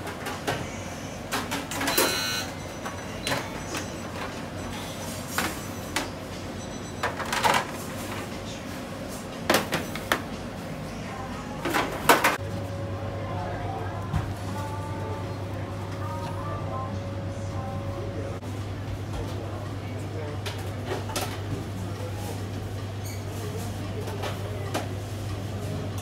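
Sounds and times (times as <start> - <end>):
trays and utensils clinking: 7.0 - 8.3
steady low hum: 10.2 - 20.3.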